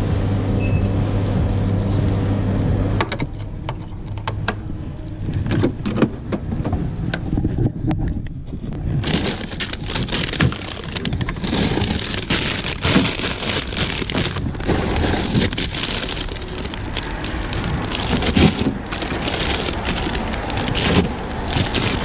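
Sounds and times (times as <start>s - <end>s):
frozen packets knocking: 9.0s - 22.0s
plastic bags crinkling: 9.0s - 22.0s.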